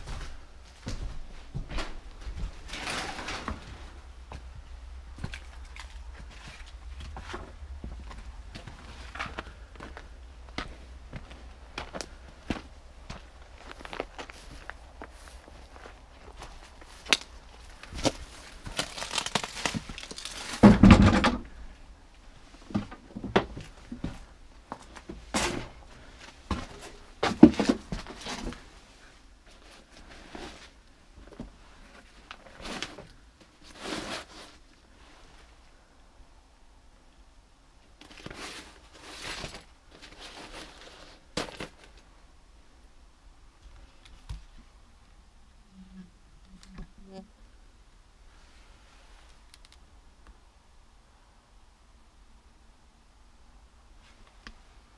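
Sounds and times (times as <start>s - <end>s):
crunching and scraping through debris: 0.8s - 21.5s, 22.6s - 28.8s, 29.5s - 35.3s, 38.0s - 42.1s
newspaper rustling: 16.8s - 20.8s.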